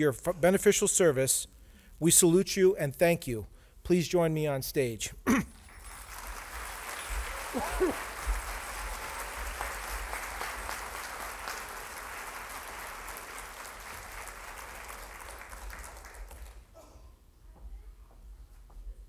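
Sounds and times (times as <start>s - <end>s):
audience applauding: 5.8s - 16.7s.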